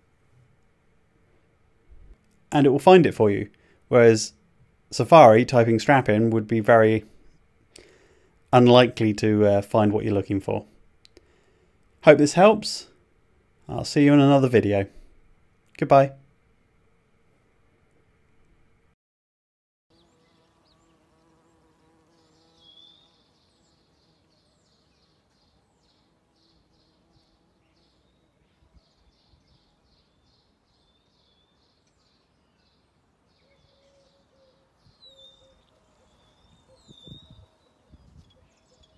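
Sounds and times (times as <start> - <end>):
bird chirps: 19.9 - 38.9
insects buzzing: 19.9 - 38.9.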